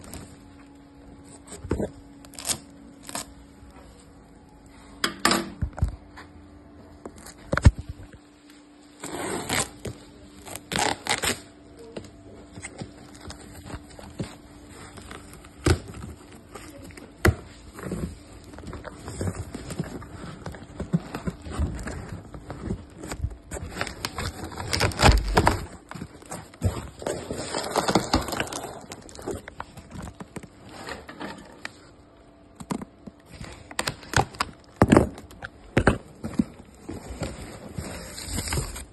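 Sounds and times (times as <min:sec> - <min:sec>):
cardboard boxes rummaged: 0:12.6 - 0:31.8, 0:33.3 - 0:38.9.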